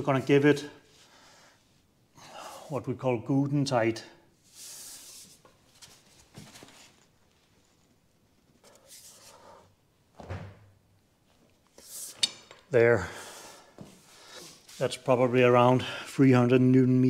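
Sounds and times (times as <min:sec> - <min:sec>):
man breathing with effort: 0:13.0 - 0:14.7.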